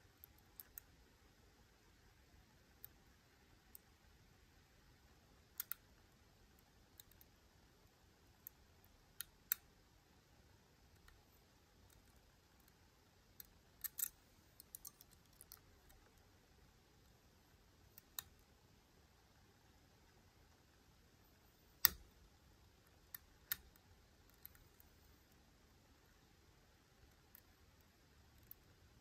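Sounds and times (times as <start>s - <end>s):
lock pick metallic clicks: 13.4s - 16.0s.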